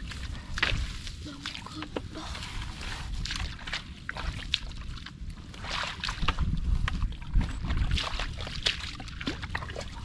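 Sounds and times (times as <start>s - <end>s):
muddy water splashing: 0.0s - 10.0s
wind rumbling on microphone: 0.0s - 10.0s.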